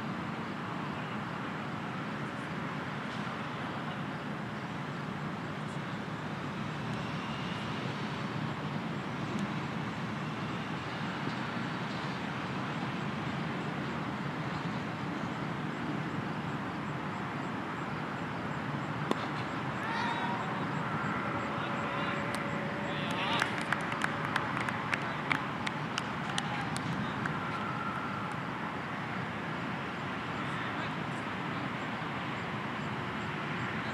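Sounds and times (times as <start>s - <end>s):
outdoor background noise: 0.0s - 33.9s.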